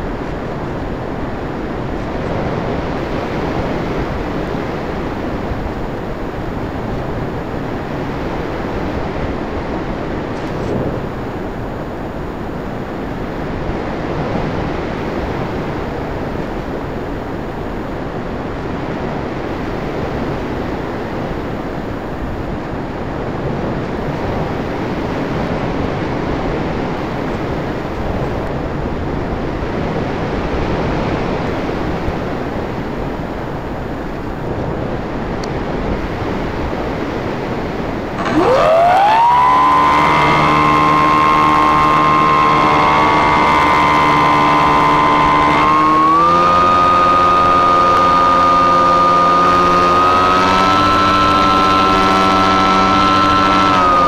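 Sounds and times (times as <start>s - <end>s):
wind rush over microphone: 0.0s - 54.0s
electric motor whine: 38.1s - 54.0s.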